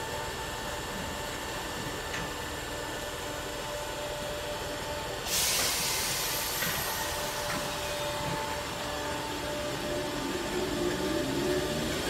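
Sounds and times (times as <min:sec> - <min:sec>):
electric train hum: 0:00.0 - 0:12.0
compressed air hiss: 0:05.2 - 0:07.5.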